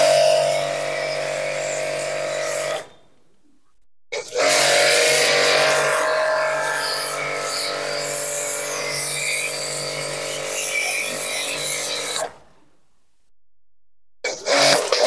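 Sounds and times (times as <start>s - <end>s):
pressure washer motor hum: 0.0s - 2.9s, 4.4s - 12.2s.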